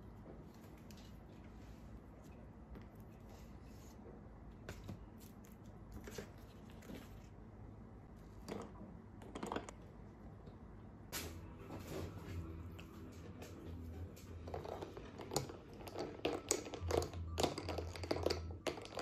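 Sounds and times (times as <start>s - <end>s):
low steady hum: 0.0s - 19.0s
paper cups tapping on glass saucer: 14.4s - 19.0s.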